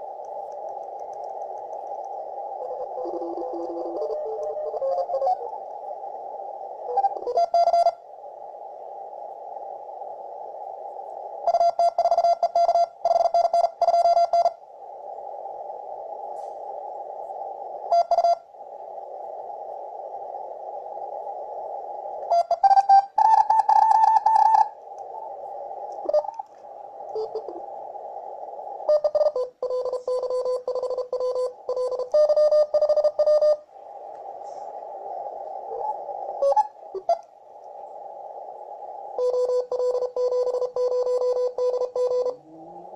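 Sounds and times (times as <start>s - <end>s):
radio band noise hiss: 0.0s - 42.9s
morse code signals: 6.8s - 8.0s, 11.4s - 14.6s, 17.8s - 18.5s, 22.2s - 25.3s, 26.0s - 26.5s, 27.1s - 27.6s, 28.8s - 33.7s, 39.2s - 42.5s.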